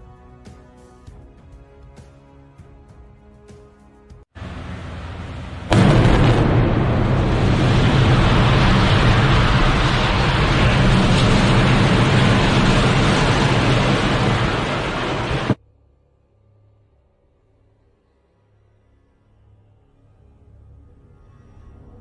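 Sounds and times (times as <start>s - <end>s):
building collapse rumble: 4.4s - 15.6s
loud demolition blast: 4.4s - 15.6s.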